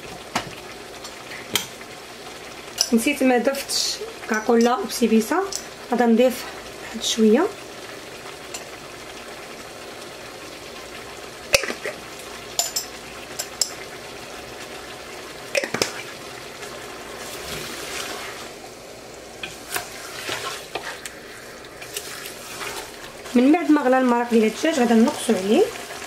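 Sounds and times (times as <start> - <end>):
chicken sizzling in pot: 0.0 - 26.0
wooden spoon stirring: 19.4 - 25.4.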